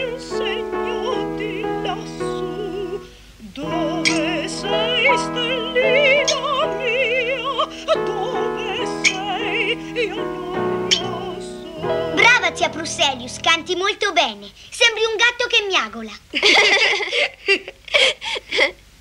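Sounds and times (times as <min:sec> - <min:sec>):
woman singing operatically: 0:00.0 - 0:14.2
sustained instrumental accompaniment: 0:08.3 - 0:13.9.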